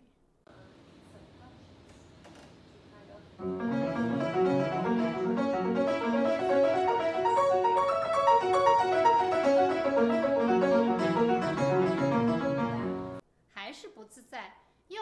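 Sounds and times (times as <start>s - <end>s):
classical piano piece: 3.4s - 13.2s.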